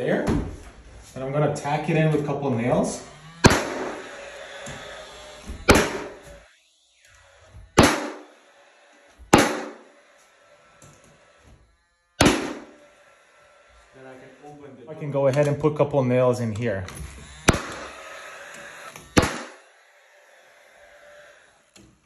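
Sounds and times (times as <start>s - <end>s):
nail gun firing: 3.4s - 6.4s, 7.5s - 8.3s, 9.2s - 10.0s, 12.2s - 12.8s, 17.2s - 19.7s.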